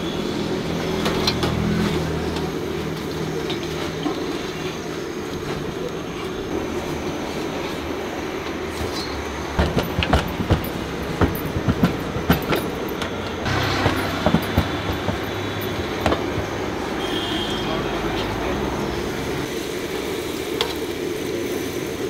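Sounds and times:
rolling pin knocking on metal: 0:09.6 - 0:12.6.

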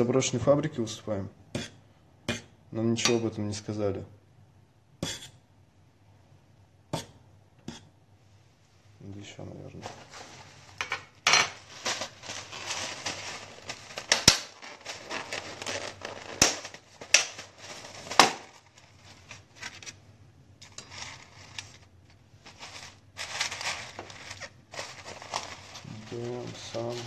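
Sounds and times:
plastic container crinkling: 0:11.4 - 0:20.0, 0:20.6 - 0:27.0
sharp clicks and cracks: 0:14.0 - 0:14.6, 0:16.3 - 0:17.4.

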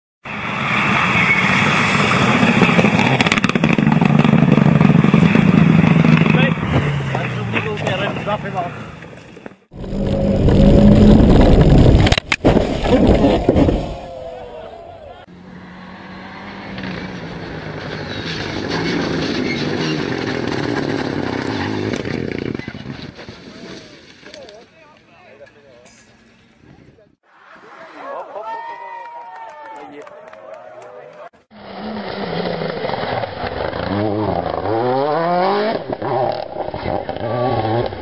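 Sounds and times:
rally car engine revving: 0:00.7 - 0:08.8, 0:09.8 - 0:23.0, 0:31.5 - 0:38.0.

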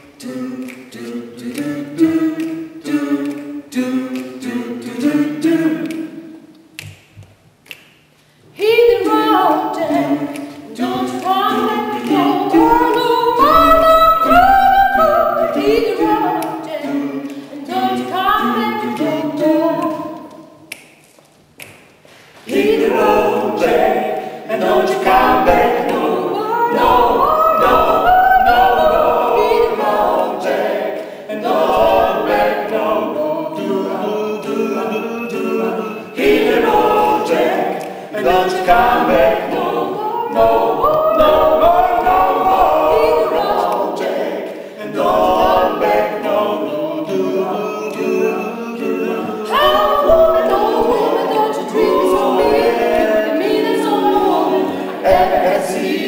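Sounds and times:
a cappella group singing in harmony: 0:00.0 - 0:07.1, 0:07.7 - 0:21.0, 0:21.6 - 0:56.0.

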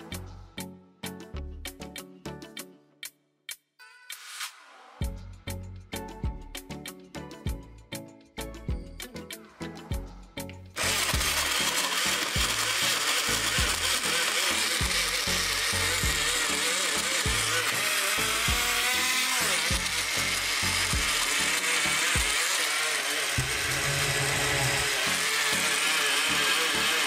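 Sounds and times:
background music with steady beat: 0:00.0 - 0:27.0
blender motor running: 0:10.8 - 0:27.0.

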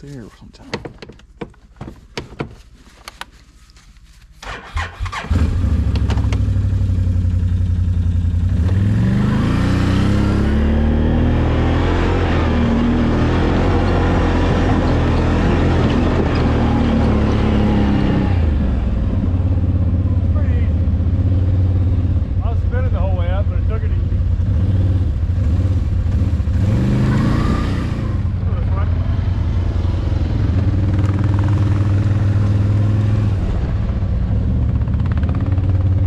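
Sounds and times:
quad engine starting and running: 0:04.4 - 0:36.0.

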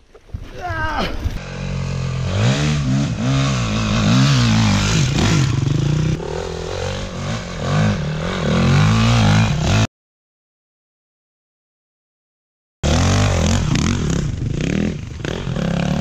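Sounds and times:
dirt bike engine revving: 0:01.4 - 0:09.9, 0:12.8 - 0:16.0.

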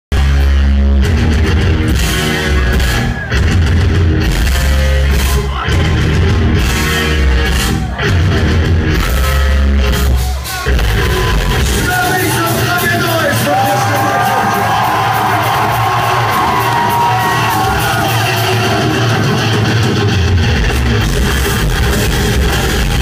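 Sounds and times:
live rock band playing metal: 0:00.1 - 0:23.0.

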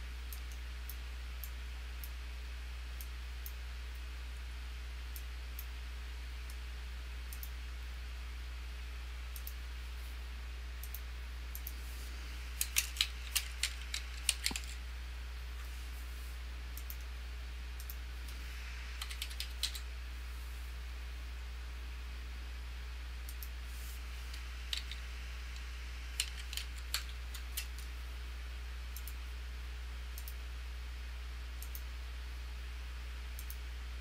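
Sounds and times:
steady low hum: 0:00.0 - 0:34.0
mouse clicks: 0:10.8 - 0:11.8, 0:12.6 - 0:14.8, 0:16.8 - 0:17.1, 0:19.0 - 0:19.9, 0:24.3 - 0:27.9, 0:31.6 - 0:31.9, 0:33.4 - 0:33.6
computer keyboard typing: 0:12.6 - 0:14.8, 0:19.0 - 0:19.8, 0:24.3 - 0:25.0, 0:26.1 - 0:27.9.

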